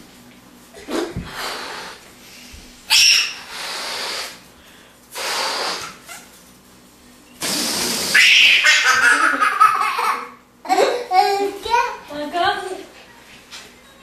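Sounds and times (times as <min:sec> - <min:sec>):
toddler high-pitched squeal: 0:02.9 - 0:03.4.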